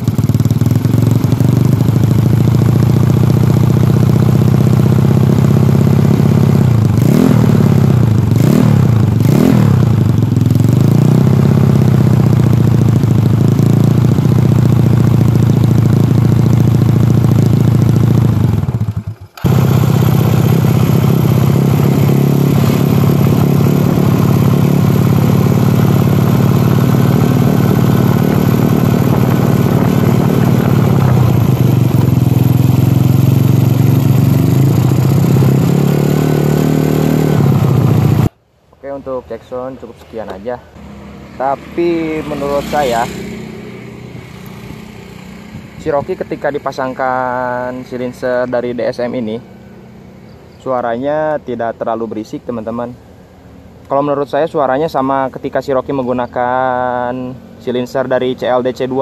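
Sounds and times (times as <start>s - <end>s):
scooter engine throttle blips: 0.0s - 38.3s
scooter exhaust while riding: 0.0s - 38.4s, 40.7s - 50.6s, 53.0s - 53.9s, 56.0s - 59.0s.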